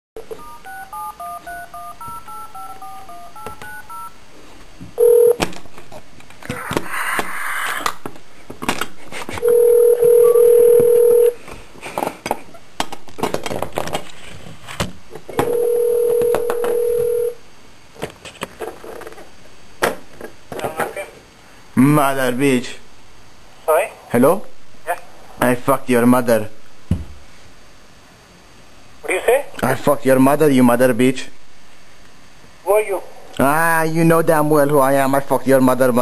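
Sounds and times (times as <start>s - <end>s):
telephone ringback tone: 0.3s - 4.2s, 5.0s - 5.4s, 9.4s - 11.4s, 15.4s - 17.4s
telephone keypad beeps: 0.4s - 4.1s, 5.0s - 5.4s, 9.4s - 11.4s
phone line clicks and crackle: 15.4s - 17.1s.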